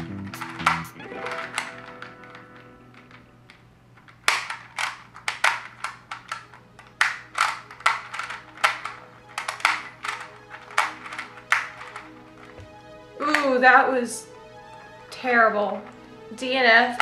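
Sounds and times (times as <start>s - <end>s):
plastic puzzle clicking: 0.2s - 13.6s.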